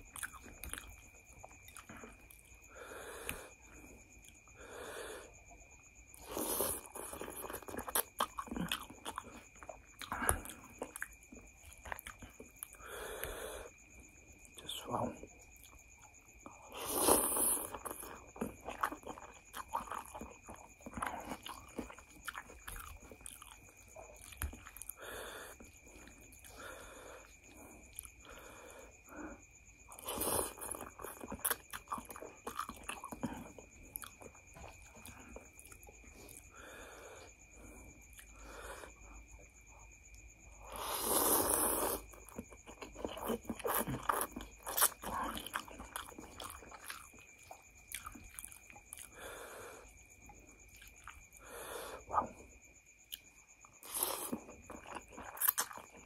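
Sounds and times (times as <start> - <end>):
wet chewing and lip smacks: 0.0 - 2.6, 6.2 - 12.8, 15.4 - 28.4, 29.8 - 36.5, 38.0 - 40.3, 41.8 - 49.3, 49.9 - 51.4, 52.1 - 56.0
noodles slurped: 6.2 - 11.0, 16.6 - 23.6, 29.9 - 35.4, 40.7 - 49.2, 53.8 - 56.0.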